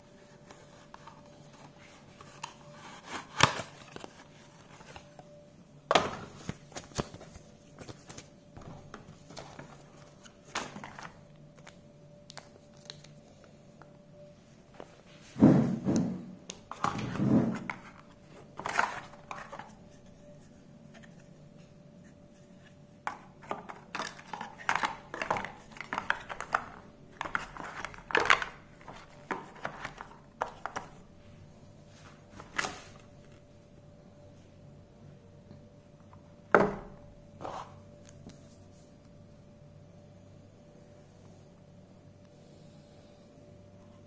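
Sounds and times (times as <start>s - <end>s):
packaging rustling and clicking: 6.0s - 13.2s, 16.5s - 19.8s, 23.1s - 31.0s.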